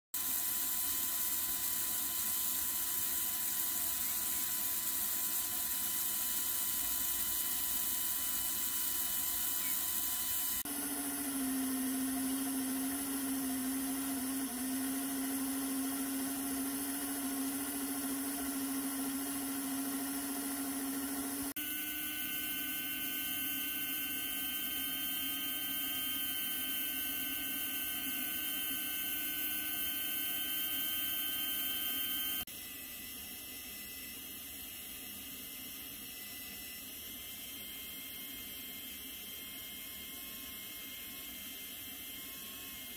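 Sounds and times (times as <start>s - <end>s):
model locomotive motors whirring: 0.2s - 32.5s.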